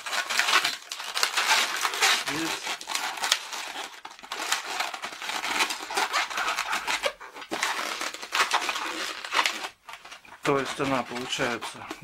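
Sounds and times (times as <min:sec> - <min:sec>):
balloon rubbing and rustling: 0:00.0 - 0:12.0.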